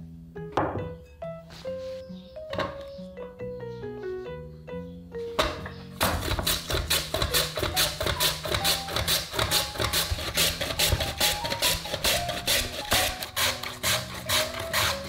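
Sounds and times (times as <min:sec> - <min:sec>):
potato rasping over mandoline slicer: 0:06.0 - 0:15.0.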